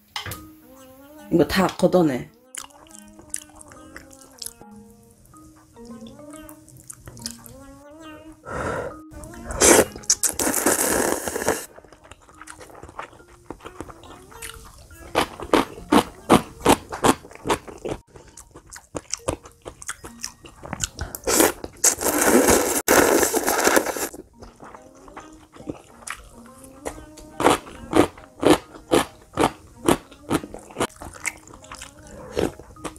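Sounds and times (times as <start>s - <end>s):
chewing: 2.4s - 4.6s, 5.8s - 7.7s, 9.3s - 32.9s
clicking mouth sounds: 2.5s - 3.5s
noodles slurped: 9.5s - 13.2s, 20.7s - 24.1s.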